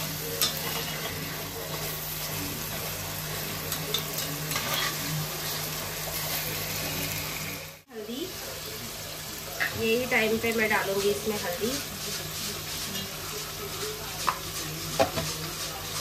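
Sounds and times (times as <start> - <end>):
vegetables sizzling in hot oil: 0.0 - 16.0
metal spatula scraping pot: 0.4 - 1.9, 3.9 - 6.4.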